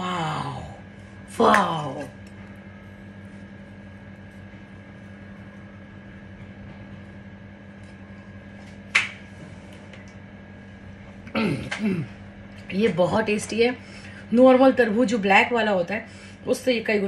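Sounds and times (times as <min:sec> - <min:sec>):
appliance humming: 0:00.0 - 0:17.0.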